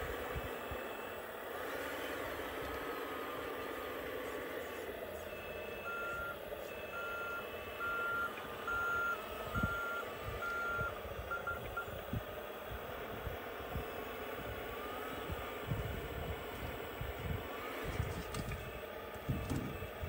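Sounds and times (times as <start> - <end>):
steady whine: 0.0 - 20.0
reversing beeper: 5.2 - 12.0.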